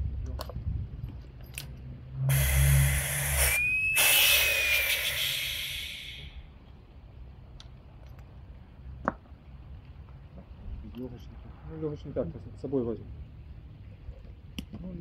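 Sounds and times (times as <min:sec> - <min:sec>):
compressed air hissing: 0:02.2 - 0:06.4
air whistle: 0:02.2 - 0:06.5.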